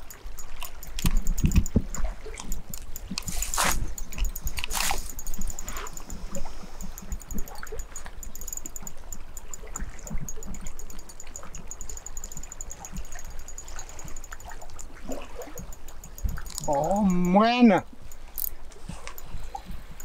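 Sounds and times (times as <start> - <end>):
faint rapid high ticking: 0.0 - 20.0
river water lapping at bank: 0.0 - 20.0.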